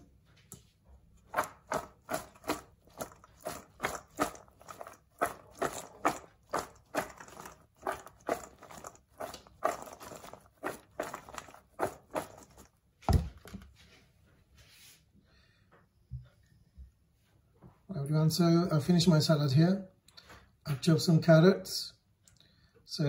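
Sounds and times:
salad rustling in steel bowl: 0:01.2 - 0:12.8.

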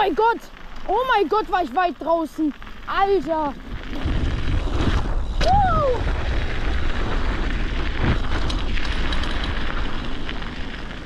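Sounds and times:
mountain bike rolling on snow: 0:00.0 - 0:11.0
wind buffeting the microphone: 0:02.8 - 0:11.0
bike thump and rattling clicks: 0:08.0 - 0:10.4.

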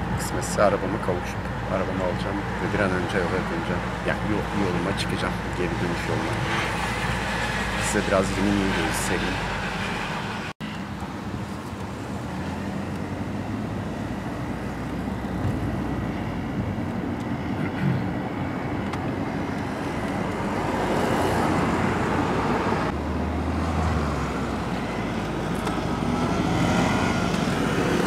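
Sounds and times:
road noise inside car: 0:00.0 - 0:28.0.

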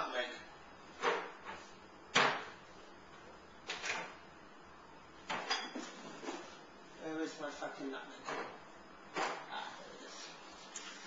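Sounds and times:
kitchen items knocking and clattering: 0:05.3 - 0:06.0.

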